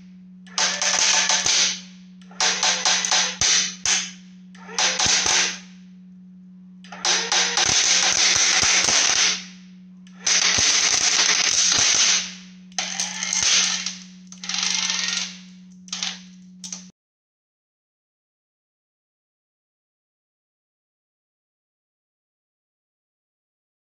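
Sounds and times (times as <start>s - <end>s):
low hum: 0.0s - 16.9s
actuator motor whirring: 0.4s - 5.7s, 6.8s - 9.5s, 10.1s - 16.8s.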